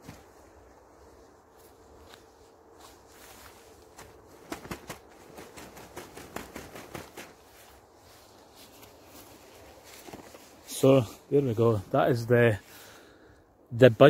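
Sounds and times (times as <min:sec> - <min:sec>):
tarp and sleeping bag rustling: 0:00.0 - 0:12.2
footsteps on rough grass: 0:00.0 - 0:12.8.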